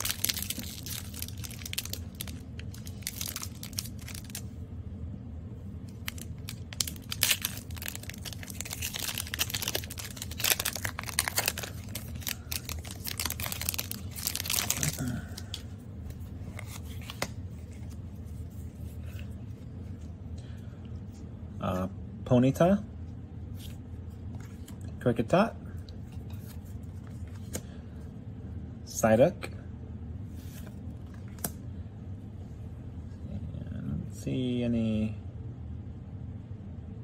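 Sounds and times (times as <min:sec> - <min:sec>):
foil wrapper crinkling and tearing: 0:00.0 - 0:04.4, 0:05.9 - 0:15.7
cards rustling: 0:00.0 - 0:04.5, 0:05.9 - 0:20.1, 0:26.0 - 0:27.8.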